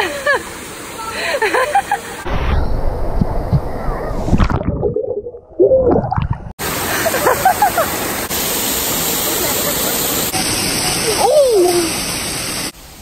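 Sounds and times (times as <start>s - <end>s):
waterfall rushing: 6.6s - 13.0s.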